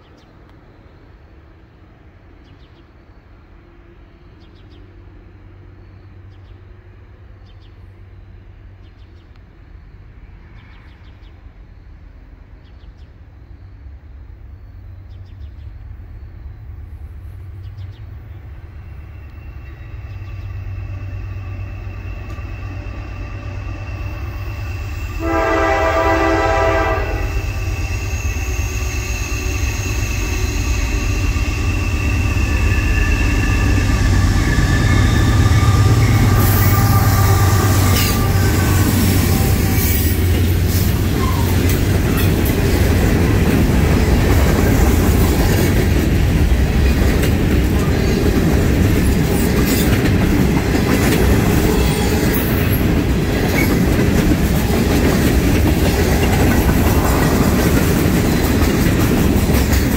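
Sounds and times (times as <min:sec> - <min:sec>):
diesel locomotive engine rumble: 0:00.0 - 0:59.9
train air horn blast: 0:21.4 - 0:30.2, 0:33.1 - 0:41.6.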